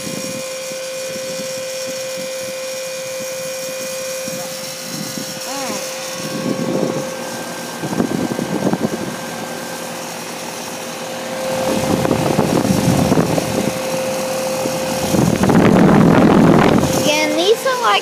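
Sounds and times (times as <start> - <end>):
heat pump humming: 0.0 - 18.0
air rushing over microphone: 11.5 - 13.8, 14.6 - 18.0.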